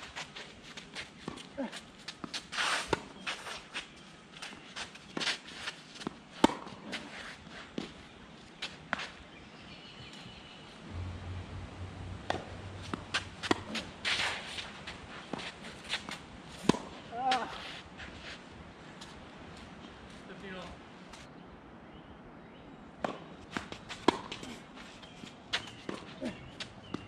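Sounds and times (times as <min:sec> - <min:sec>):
footsteps and shoe scuffs on court: 0:00.0 - 0:09.3, 0:12.8 - 0:21.3, 0:23.5 - 0:27.0
low hum: 0:10.7 - 0:14.4.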